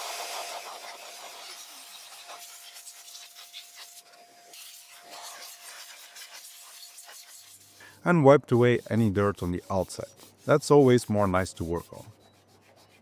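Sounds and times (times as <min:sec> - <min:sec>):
air duster hissing: 0:00.0 - 0:08.0.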